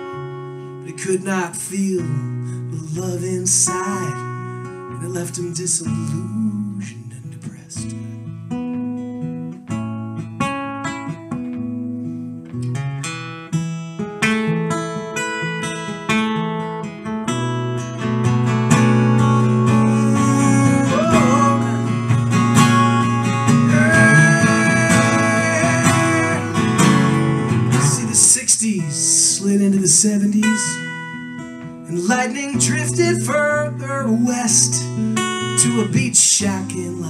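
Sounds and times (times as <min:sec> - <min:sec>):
acoustic guitar playing: 0:00.0 - 0:37.0.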